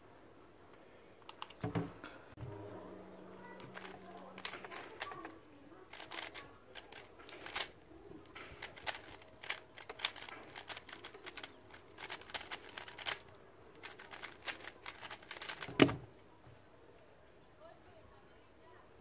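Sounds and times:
puzzle cube clicking turns: 3.7 - 5.3, 5.9 - 16.0
cube thump on table: 14.9 - 16.0.

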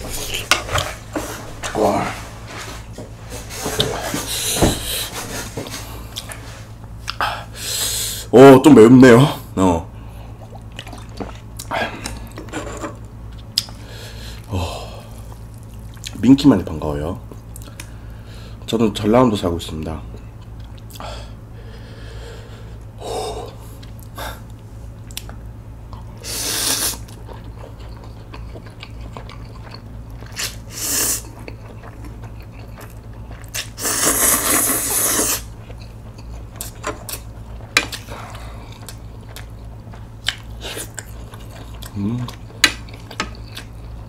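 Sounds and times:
chewing: 10.4 - 12.4, 15.1 - 16.2, 23.8 - 44.0
person slurping noodles: 26.2 - 27.0, 33.6 - 35.5.

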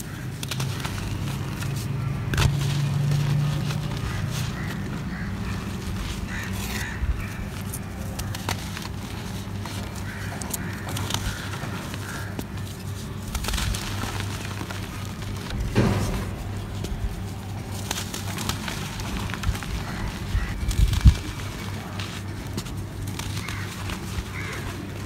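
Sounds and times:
dry earth crunching by hand: 0.0 - 25.0.

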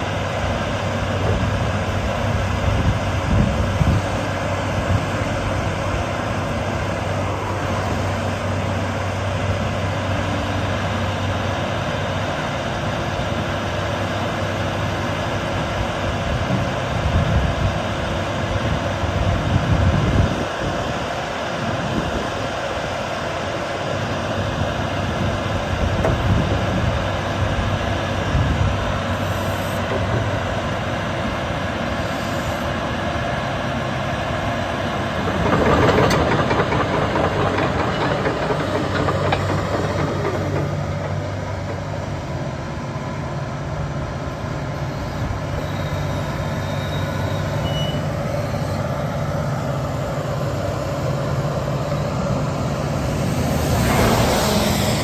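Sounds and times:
diesel engine under load: 0.0 - 55.0
hydraulics working: 25.2 - 55.0.

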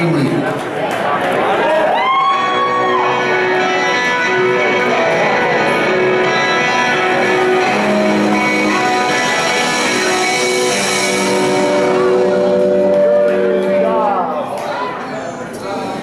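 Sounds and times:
rock band playing live: 1.9 - 14.5.

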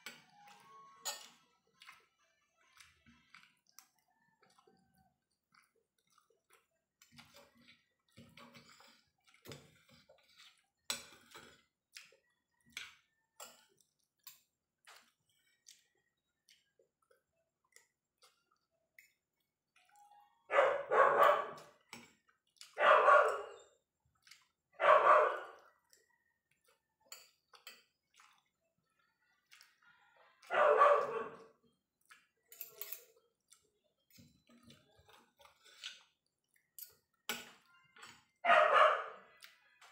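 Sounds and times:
chewing: 0.0 - 20.4, 21.2 - 24.8, 25.4 - 38.5, 39.2 - 39.9
dog barking: 20.5 - 21.7, 22.7 - 23.7, 24.8 - 25.7, 30.4 - 31.5, 38.4 - 39.3
cutlery clicking on a plate: 32.5 - 33.2, 36.8 - 38.2.

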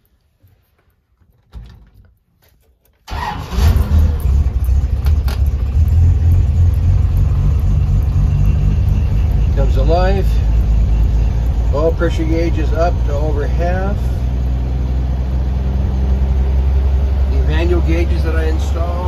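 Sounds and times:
engine starting and running: 3.0 - 19.0.

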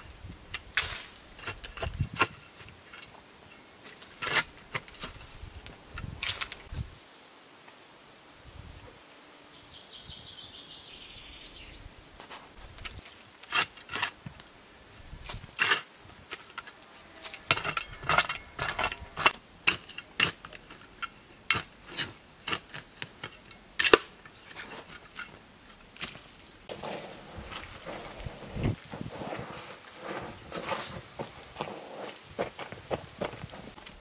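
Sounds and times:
faint outdoor background: 0.0 - 34.0
shovel digging stony soil: 0.6 - 3.1, 3.8 - 6.7, 12.7 - 14.2, 17.2 - 34.0.

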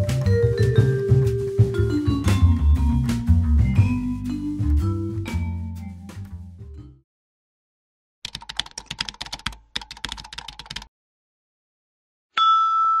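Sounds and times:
mallet percussion music: 0.0 - 6.9
computer keyboard typing: 8.2 - 10.9.

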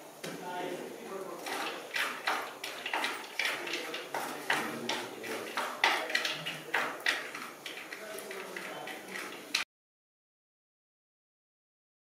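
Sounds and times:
wooden spatula scraping clay pot: 1.3 - 9.6.

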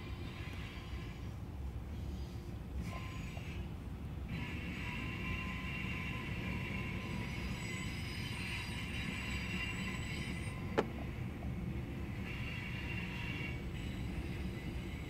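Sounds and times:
freight train wheels rumbling on track: 0.0 - 15.0
wheel squeal: 4.3 - 10.8.

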